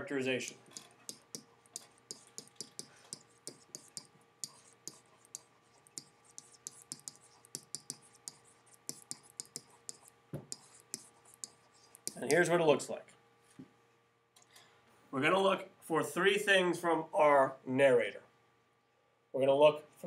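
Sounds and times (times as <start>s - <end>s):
stylus tapping on pen tablet: 0.7s - 12.4s.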